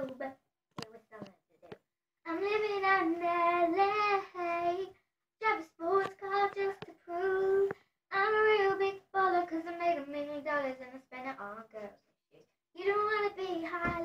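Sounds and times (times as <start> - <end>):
girl singing unaccompanied: 0.0 - 0.4, 2.3 - 11.9, 12.8 - 14.0.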